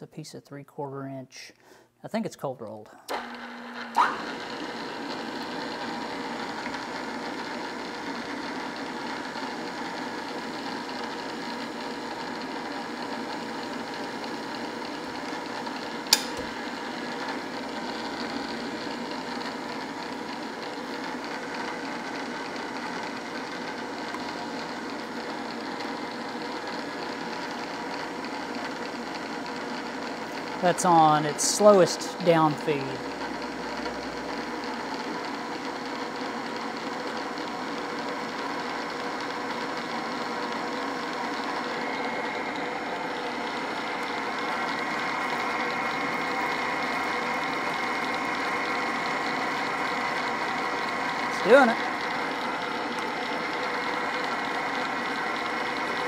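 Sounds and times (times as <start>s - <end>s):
drill press whining: 3.1s - 56.0s
sharp click: 16.1s - 16.5s.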